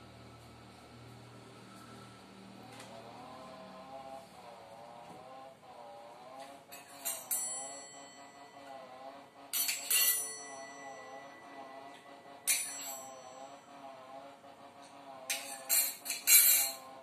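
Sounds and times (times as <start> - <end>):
faint music: 0.0 - 17.0
spoon tapping steel bowl: 6.8 - 7.8, 11.9 - 13.4.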